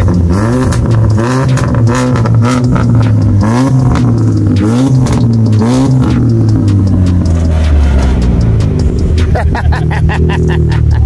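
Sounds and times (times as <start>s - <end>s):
car engine revving: 0.0s - 11.0s.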